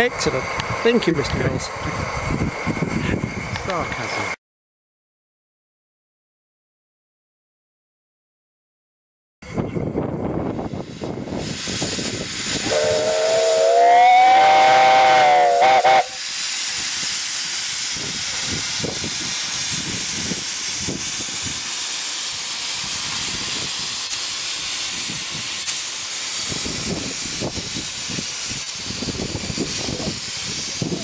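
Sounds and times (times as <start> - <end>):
steam hissing: 0.0 - 4.4, 9.5 - 31.0
steam locomotive whistle: 12.6 - 16.3.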